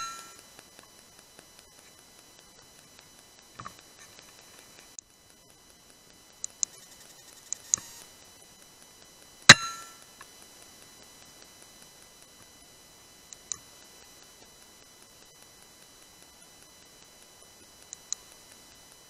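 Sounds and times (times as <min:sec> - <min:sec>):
faint clicks: 0:00.0 - 0:12.7, 0:13.3 - 0:19.0.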